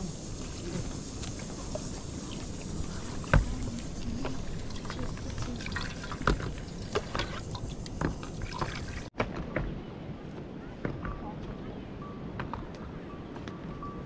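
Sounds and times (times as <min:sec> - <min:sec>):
liquid pouring and sloshing: 0:03.2 - 0:09.1.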